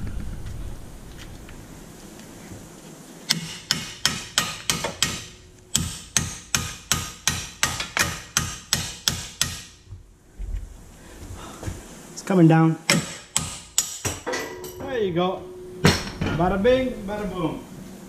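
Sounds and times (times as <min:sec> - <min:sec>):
hammer striking steel: 0:03.3 - 0:09.8, 0:12.9 - 0:16.6.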